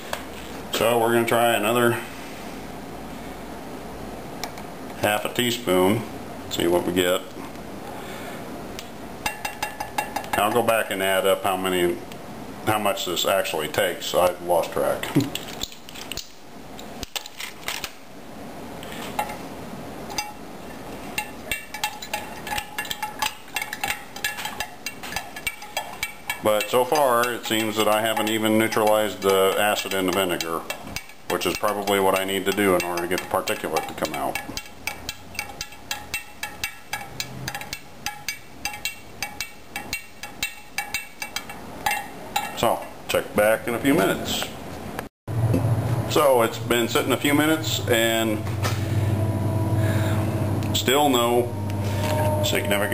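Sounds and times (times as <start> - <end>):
spoon clinking against containers: 9.3 - 10.6, 21.1 - 42.8.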